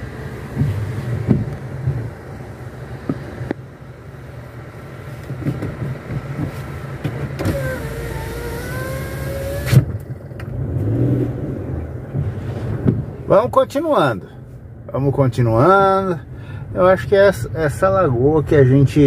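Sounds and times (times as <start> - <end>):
low hum of car: 0.0 - 19.0
electric window motor whirring: 7.4 - 9.9.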